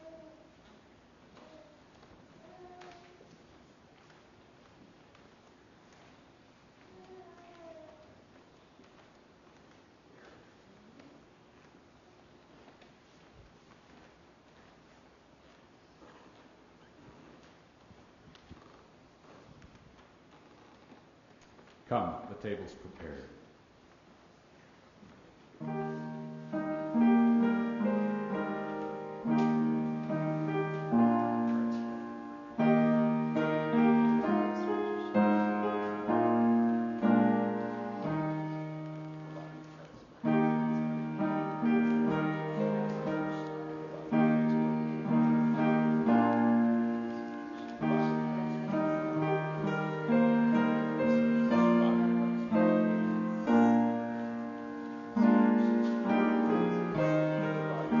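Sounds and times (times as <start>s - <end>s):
piano playing slow chords: 25.6s - 58.0s.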